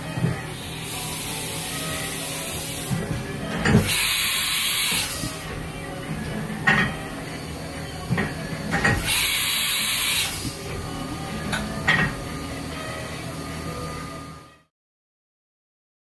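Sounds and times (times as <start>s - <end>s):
machine carousel clunks: 2.8s - 4.2s, 4.8s - 7.1s, 8.0s - 9.2s
air hiss from tool release: 3.8s - 5.4s.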